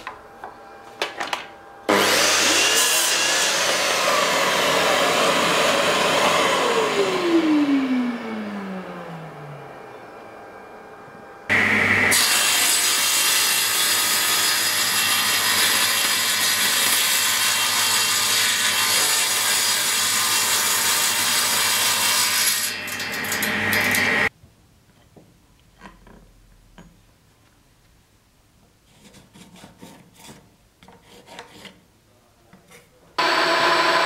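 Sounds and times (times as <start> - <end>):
table saw cutting wood: 1.9 - 9.8, 11.5 - 24.3, 33.2 - 34.0.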